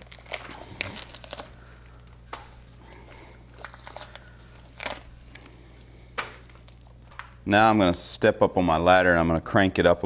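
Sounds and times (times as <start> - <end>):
gloved hands rustling: 0.0 - 7.4
low steady hum: 0.0 - 10.0.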